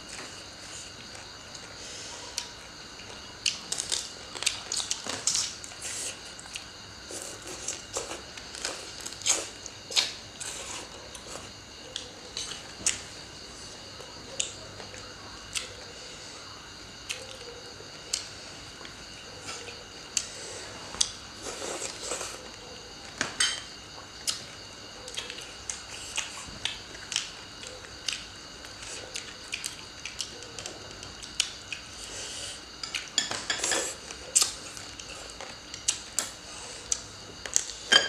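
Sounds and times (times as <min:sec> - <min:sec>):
food crunching while chewed: 0:00.1 - 0:13.0, 0:23.9 - 0:37.9.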